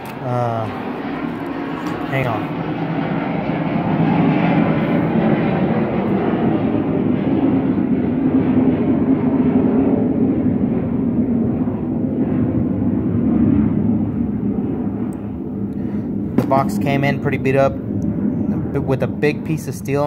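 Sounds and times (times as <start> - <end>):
speech: 0.2 - 0.8, 2.1 - 2.5, 16.4 - 17.8, 18.6 - 20.0.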